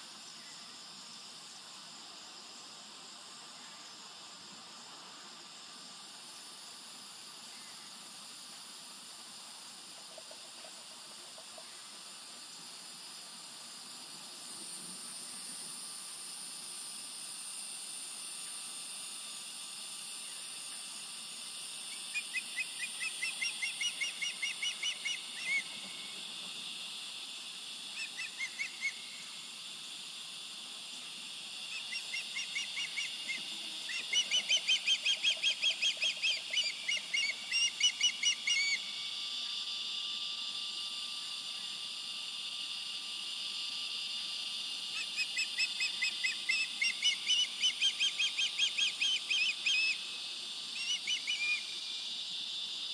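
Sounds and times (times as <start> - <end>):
osprey whistled chirps: 21.9 - 25.8, 28.0 - 29.4, 31.7 - 39.0, 44.9 - 50.1, 50.7 - 51.8.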